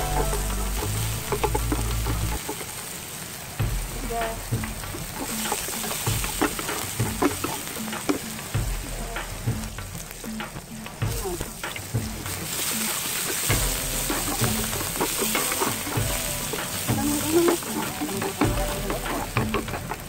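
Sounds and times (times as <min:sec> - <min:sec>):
garlic sizzling in a frying pan: 0:00.0 - 0:20.0
utensil scraping and tapping pan: 0:04.6 - 0:20.0.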